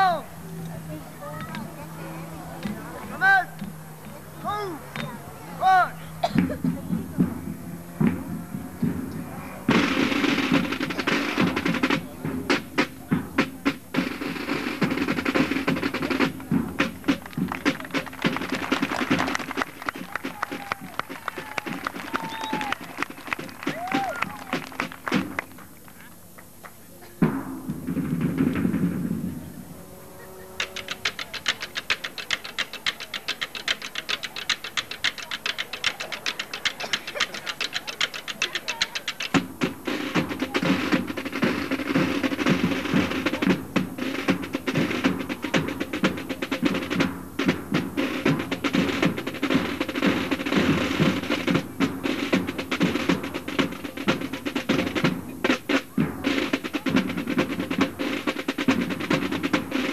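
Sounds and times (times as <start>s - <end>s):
low drum beats: 0.0s - 30.0s, 30.6s - 59.9s
snare drum roll: 6.2s - 25.7s, 27.2s - 29.6s, 30.5s - 59.9s
few people clapping: 16.2s - 26.9s, 30.8s - 39.2s.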